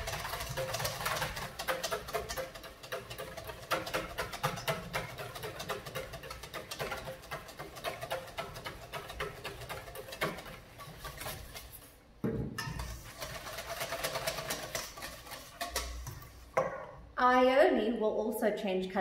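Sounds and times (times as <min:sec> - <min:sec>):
whisk beating in metal bowl: 0:00.0 - 0:12.0, 0:12.6 - 0:16.6.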